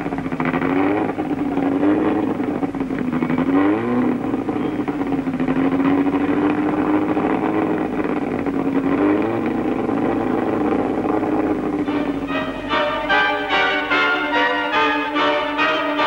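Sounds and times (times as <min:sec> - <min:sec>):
racing car engine: 0:00.0 - 0:16.0
orchestral music: 0:11.8 - 0:16.0.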